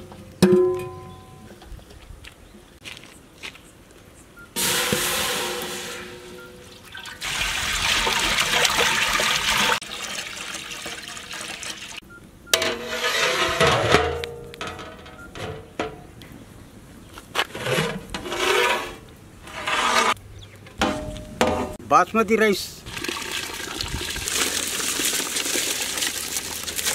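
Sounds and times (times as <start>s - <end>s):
metal clank and scraping: 4.6s - 6.8s, 12.5s - 16.2s, 17.4s - 21.8s
water pouring into metal pot: 4.6s - 12.0s, 22.9s - 26.9s.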